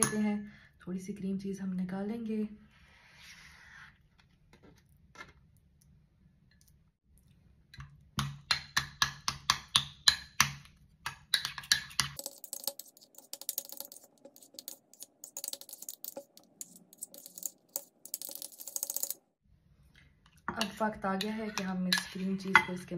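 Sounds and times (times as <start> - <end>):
metal spoon scraping ceramic bowl: 11.3 - 19.2, 20.5 - 22.8.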